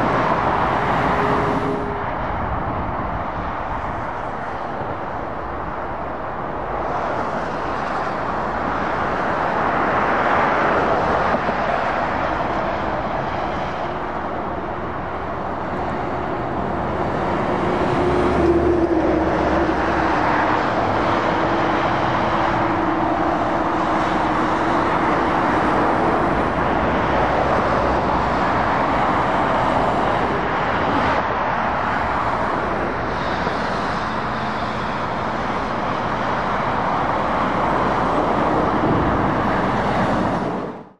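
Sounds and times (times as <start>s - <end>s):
lorry engine hum: 0.0s - 40.9s
road traffic passing: 0.0s - 40.9s.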